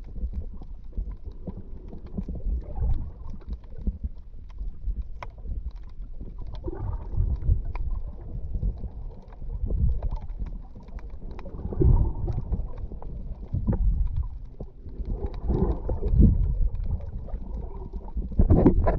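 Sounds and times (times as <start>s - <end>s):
faint clicks and crackles: 0.0s - 18.9s
underwater rumble and sloshing: 0.0s - 18.9s.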